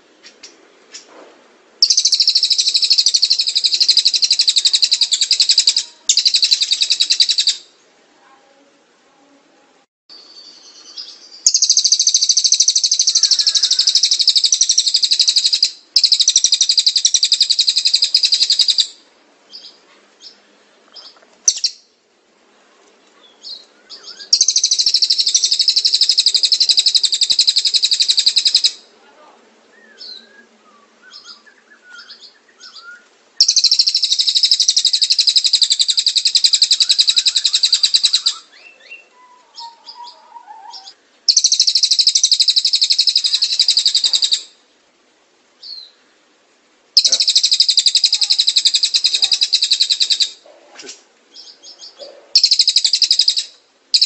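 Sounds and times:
bird chirps and whistles: 1.8 - 7.6, 10.1 - 18.9, 23.5 - 28.8, 29.8 - 44.5, 47.0 - 50.3, 52.4 - 54.0
birds trilling rapidly: 10.9 - 18.8, 33.4 - 44.4.

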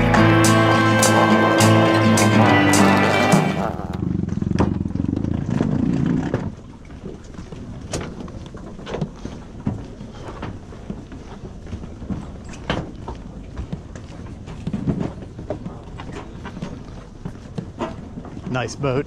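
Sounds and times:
low hum: 0.0 - 5.2
footsteps on wooden dock: 5.7 - 19.0.

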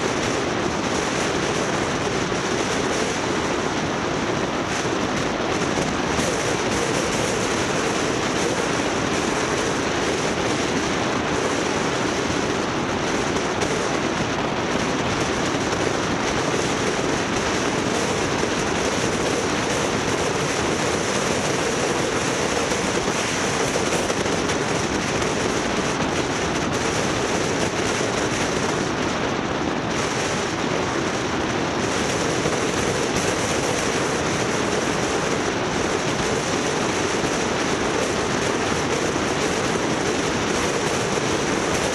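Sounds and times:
vehicle road noise: 0.0 - 41.9.

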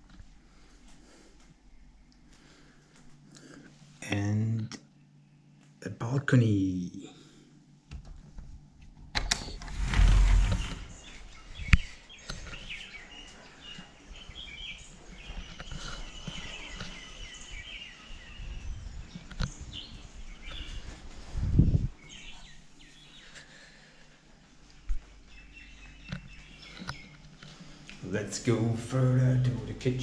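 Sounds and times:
small birds chirping and trilling: 9.7 - 24.2, 24.8 - 30.0.

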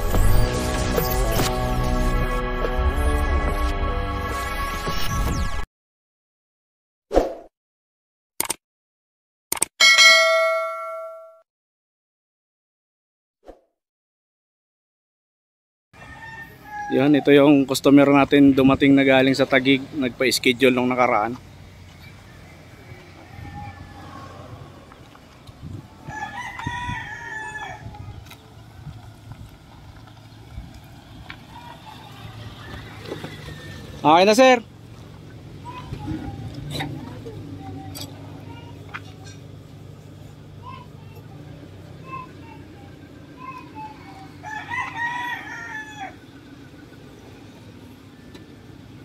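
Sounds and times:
rooster crowing: 16.0 - 17.2, 22.3 - 24.6, 26.0 - 28.0, 32.4 - 34.0, 43.9 - 46.2
car rolling slowly on dirt: 17.3 - 49.0.

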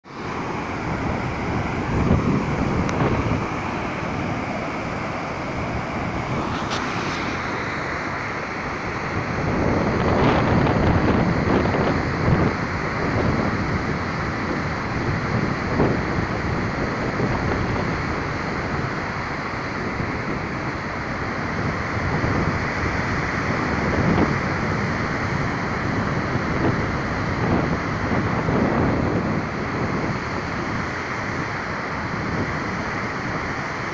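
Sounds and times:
wind buffeting microphone: 0.0 - 33.9
waterfall rushing: 0.1 - 21.5.

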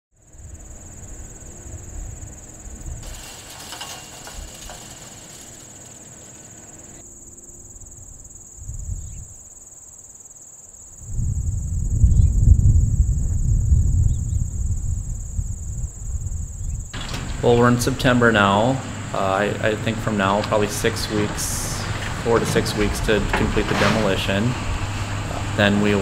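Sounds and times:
crickets chirping: 0.2 - 26.0
low rumble: 11.0 - 26.0.

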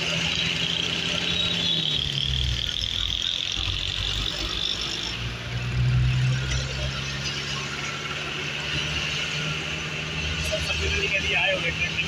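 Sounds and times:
high-pitched whine: 0.0 - 8.9
truck engine running: 0.0 - 12.0.

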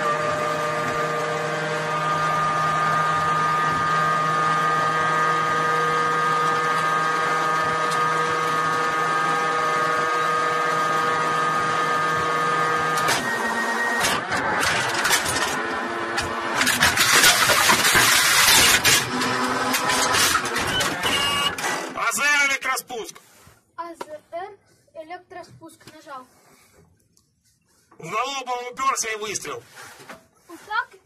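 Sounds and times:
electric drive whirring: 0.0 - 22.1.

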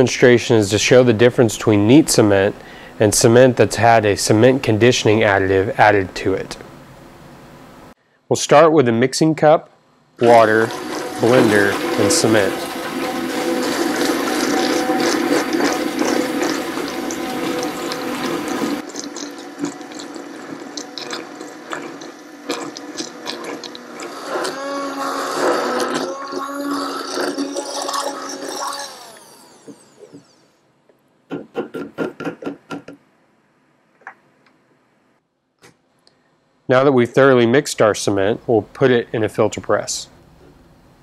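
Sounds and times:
immersion blender motor running: 10.2 - 30.5.

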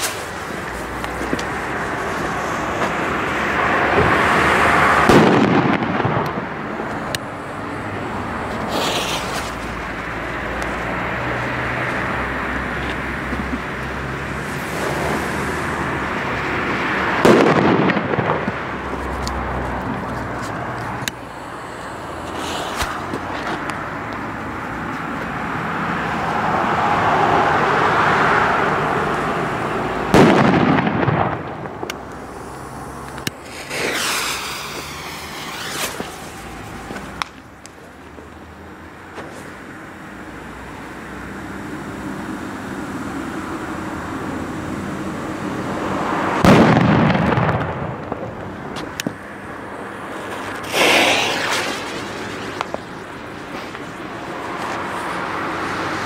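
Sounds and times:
firecracker sputtering: 0.0 - 4.0, 8.5 - 10.9, 13.5 - 16.6, 20.0 - 24.4, 30.0 - 37.9, 49.7 - 55.2
firecracker bangs: 5.0 - 6.5, 8.7 - 9.6, 17.2 - 18.8, 30.1 - 32.0, 33.4 - 37.3, 46.4 - 48.4, 50.2 - 52.9
rising hiss: 8.6 - 9.8, 21.2 - 23.3, 32.0 - 37.2, 50.2 - 52.7.

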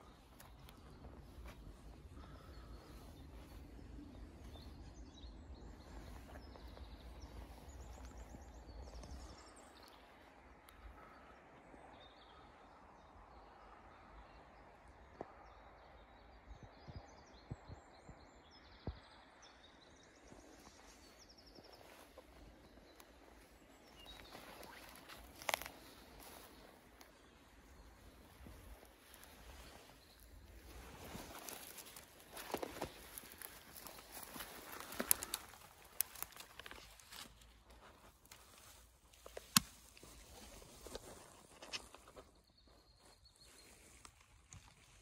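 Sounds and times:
songbirds singing trilled phrases: 38.6 - 43.9.

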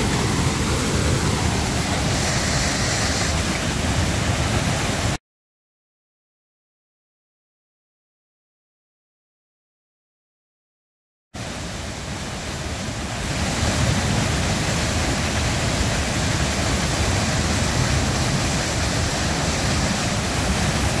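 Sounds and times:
waterfall rushing: 0.0 - 5.2, 11.4 - 21.0.

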